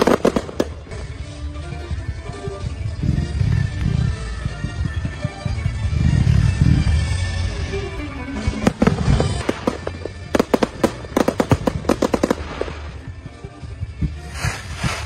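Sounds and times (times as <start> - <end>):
fireworks bangs: 0.0 - 1.1, 8.4 - 13.2.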